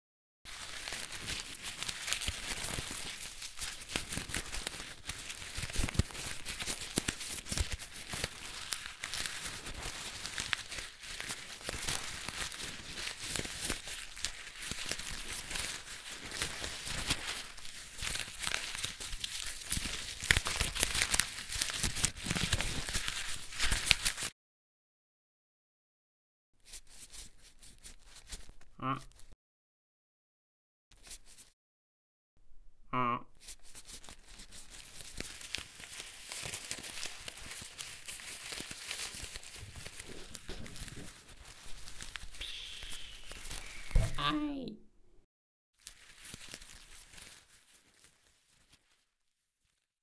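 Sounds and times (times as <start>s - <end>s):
paper crinkling and crackling: 0.5s - 24.3s, 26.7s - 29.4s, 31.0s - 31.5s, 33.4s - 44.2s, 45.8s - 49.9s.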